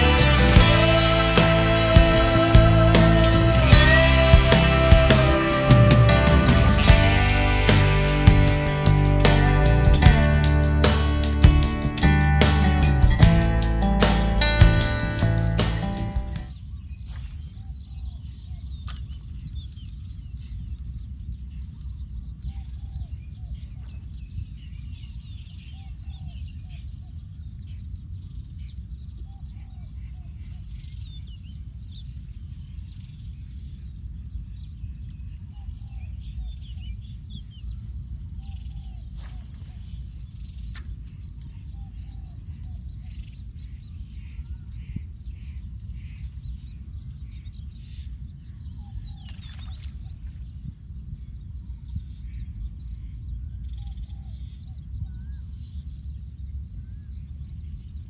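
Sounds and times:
birds chirping: 0.0 - 19.8
wind rumbling on microphone: 14.7 - 58.0.

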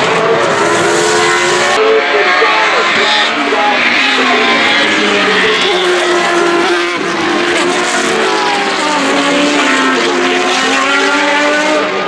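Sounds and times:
racing cars passing at speed: 0.0 - 12.0.

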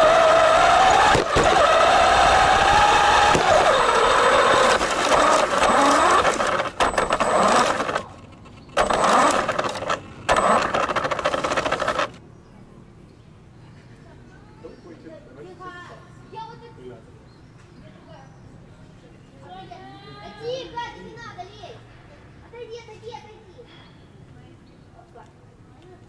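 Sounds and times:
remote-control car motor whining: 0.0 - 12.2.

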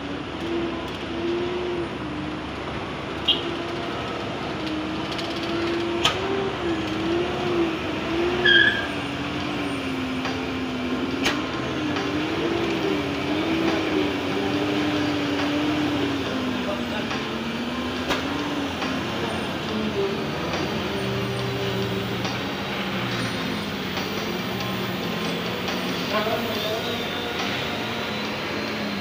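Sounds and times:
truck and car engines idling: 0.0 - 29.0.

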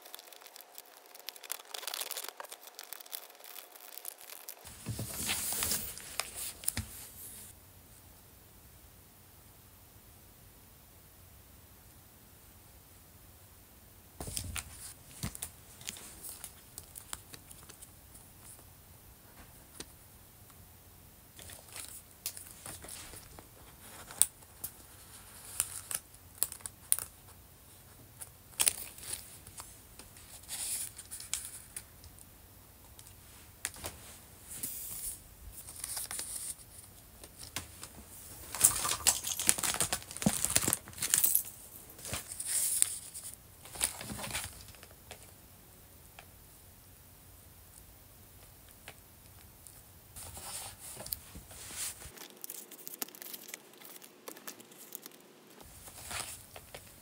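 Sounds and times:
plastic sleeves crinkling: 0.0 - 7.5, 35.6 - 45.2, 50.2 - 57.0.

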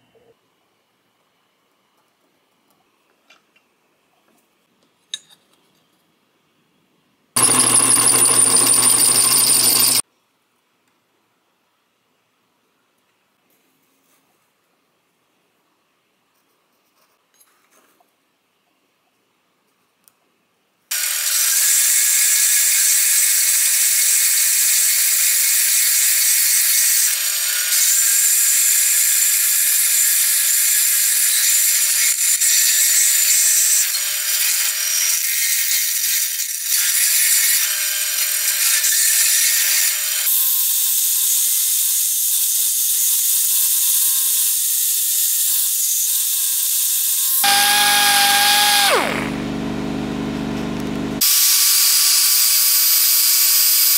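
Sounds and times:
belt sander grinding steel: 7.4 - 10.0, 46.8 - 51.6
rotary tool motor hum: 7.4 - 10.0, 45.8 - 52.2.

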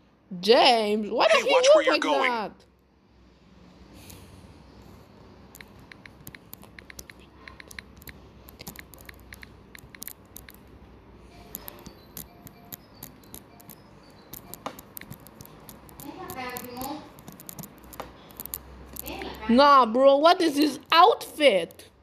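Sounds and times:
touchscreen typing taps: 5.5 - 10.7, 11.4 - 19.4.

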